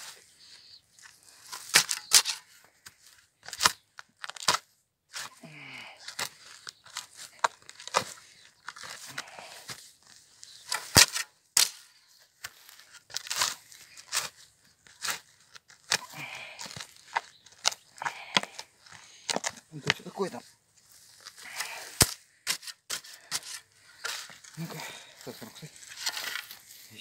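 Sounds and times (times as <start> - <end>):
spade cutting into turf: 1.4 - 2.5, 10.6 - 14.4, 21.2 - 26.7.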